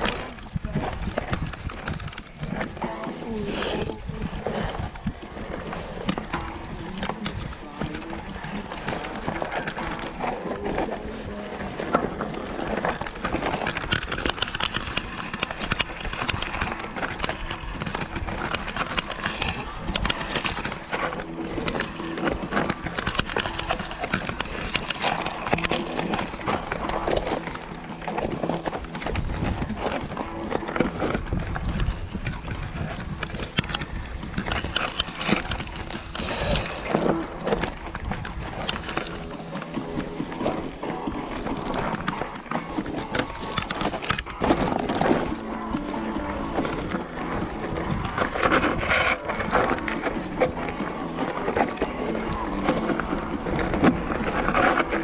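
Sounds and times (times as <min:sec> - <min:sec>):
mountain bike rattling on rocks: 0:00.0 - 0:55.0.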